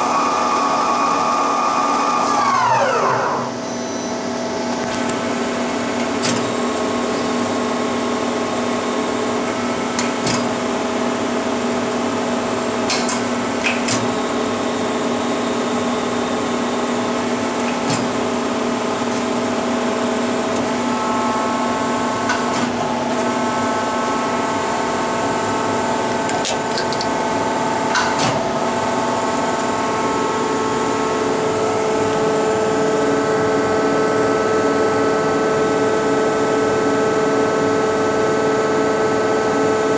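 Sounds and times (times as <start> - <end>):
machine hum: 0.0 - 39.9.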